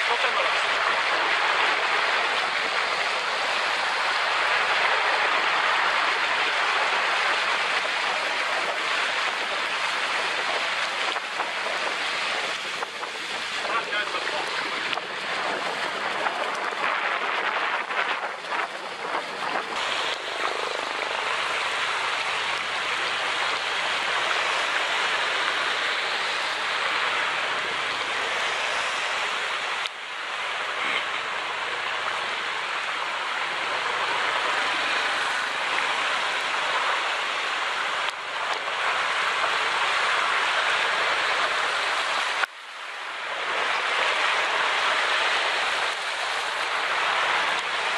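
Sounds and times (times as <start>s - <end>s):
rain: 0.0s - 47.9s
water spray: 19.7s - 42.5s.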